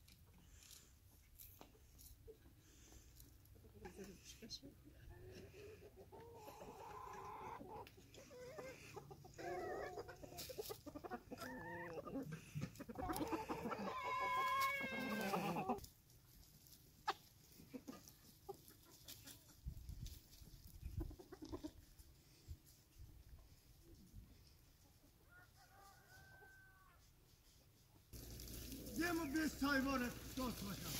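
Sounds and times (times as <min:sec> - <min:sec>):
chickens clucking: 0:01.6 - 0:28.9
rooster crowing: 0:25.4 - 0:27.0.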